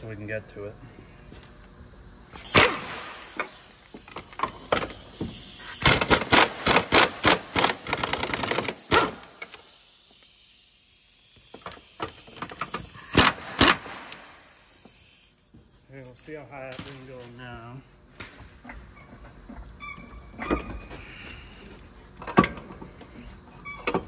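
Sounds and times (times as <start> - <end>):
hand ratchet clicking: 3.3 - 15.2.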